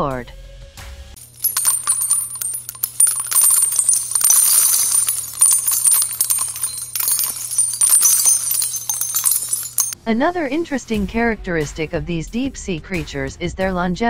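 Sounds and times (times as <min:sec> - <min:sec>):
jingling bells shaken: 0:01.2 - 0:10.0.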